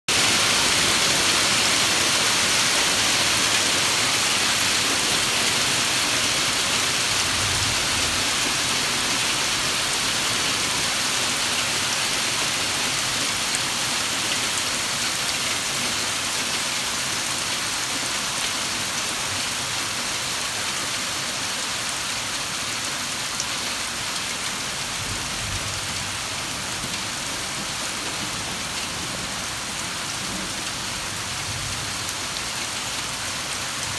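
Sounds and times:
hailstones pelting concrete and water: 0.1s - 19.7s.

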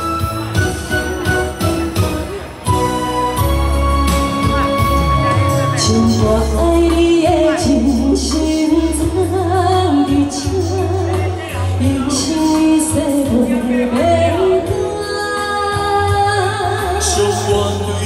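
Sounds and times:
pop music accompaniment with bass: 0.0s - 18.0s
woman singing into a microphone: 5.7s - 18.0s.

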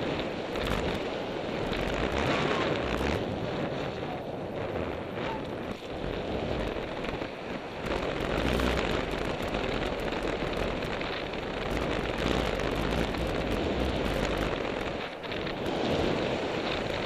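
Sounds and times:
wind rushing on microphone: 0.0s - 17.0s
bike clicks and knocks: 0.2s - 2.3s, 7.8s - 15.8s.

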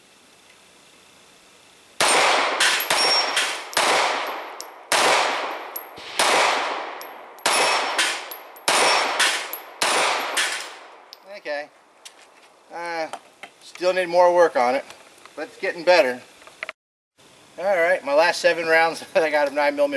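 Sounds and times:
pistol shots echoing: 2.0s - 11.0s
steel targets clanging: 2.6s - 4.8s, 6.9s - 11.4s.

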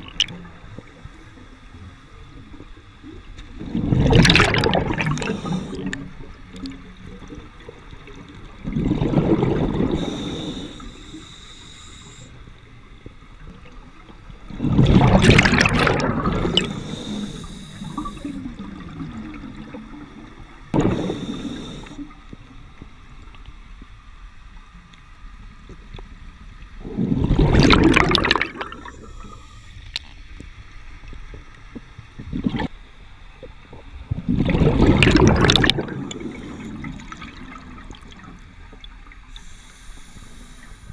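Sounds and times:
exhaled bubbles gurgling underwater: 0.0s - 23.8s, 25.5s - 30.1s, 31.0s - 40.9s
regulator hiss: 5.1s - 6.0s, 9.9s - 12.6s, 16.4s - 18.7s, 20.8s - 22.3s, 28.8s - 30.0s, 39.2s - 40.9s.

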